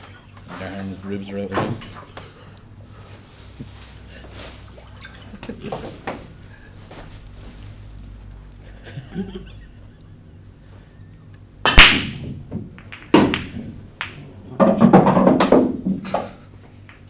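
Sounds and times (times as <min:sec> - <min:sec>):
pool balls clattering: 0:03.6 - 0:06.4, 0:11.6 - 0:17.0
cue ball cracking into rack: 0:11.6 - 0:16.2
ball dropping into pocket: 0:11.7 - 0:15.8.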